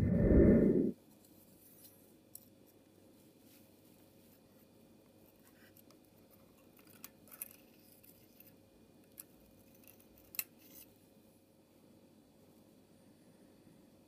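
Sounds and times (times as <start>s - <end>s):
faint steady hum: 0.0s - 14.0s
small metallic clicks and scrapes: 1.2s - 2.8s, 5.2s - 11.0s.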